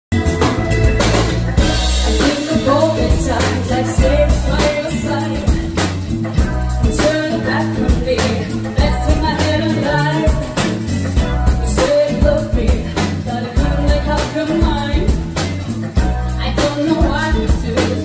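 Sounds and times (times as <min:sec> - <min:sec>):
bass guitar: 0:00.0 - 0:18.0
drum kit beat: 0:00.1 - 0:18.0
electric guitar: 0:00.1 - 0:18.0
woman singing: 0:01.8 - 0:15.5, 0:16.1 - 0:18.0.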